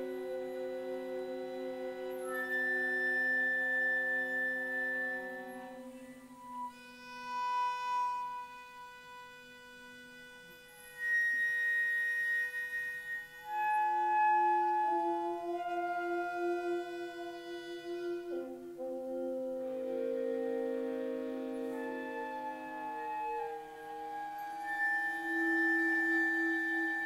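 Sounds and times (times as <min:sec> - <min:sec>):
chamber ensemble playing held notes: 0:00.0 - 0:27.0.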